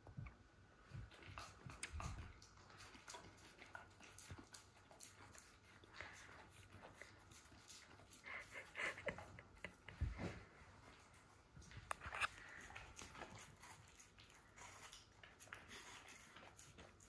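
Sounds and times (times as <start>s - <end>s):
dog nibbling fruit clicks: 1.1s - 8.6s, 11.6s - 17.0s.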